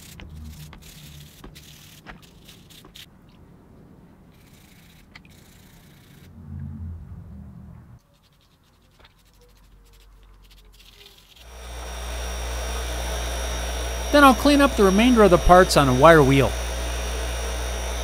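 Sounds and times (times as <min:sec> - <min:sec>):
wire brush scrubbing metal: 0:00.0 - 0:03.1, 0:08.2 - 0:18.0
bench grinder motor hum: 0:11.4 - 0:18.0.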